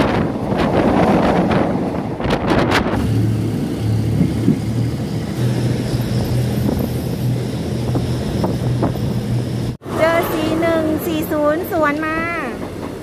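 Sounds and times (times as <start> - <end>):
train rumbling on track: 0.0 - 13.0
low engine drone: 2.9 - 10.8.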